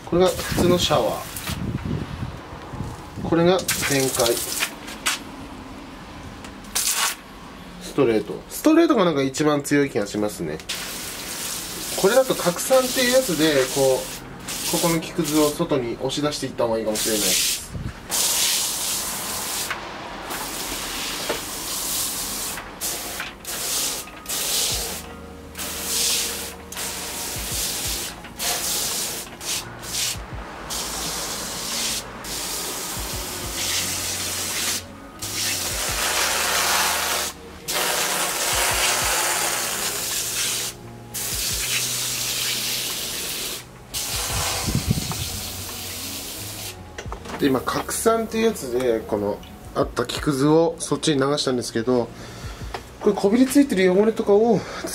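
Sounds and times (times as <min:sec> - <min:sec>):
pressure washer spraying water: 0:06.7 - 0:07.2, 0:10.7 - 0:15.6, 0:17.0 - 0:46.8.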